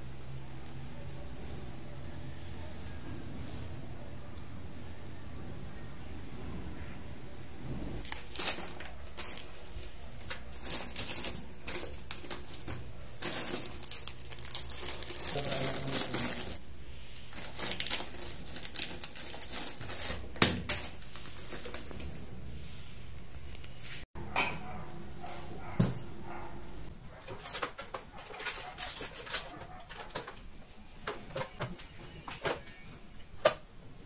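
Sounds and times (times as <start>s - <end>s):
clicks and knocks of handled objects: 27.1s - 32.6s.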